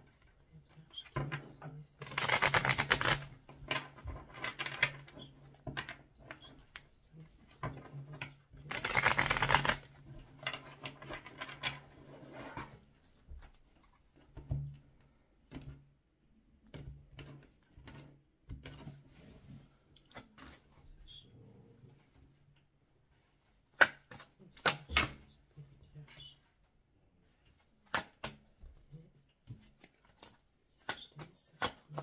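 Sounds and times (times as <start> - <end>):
cards shuffling: 2.0 - 5.3, 8.6 - 9.9.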